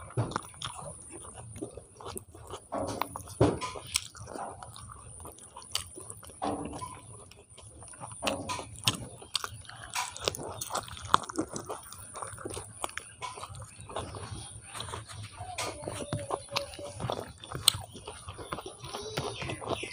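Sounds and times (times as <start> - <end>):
chewing and mouth smacking: 0.0 - 19.9.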